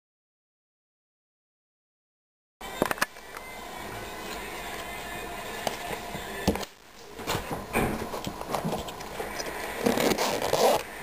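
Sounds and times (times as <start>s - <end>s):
fabric pouch rustling: 9.8s - 10.9s.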